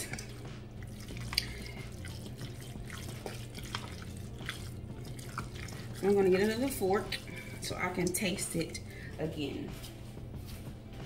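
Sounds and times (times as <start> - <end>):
spoon stirring wet salad: 0.0 - 8.7.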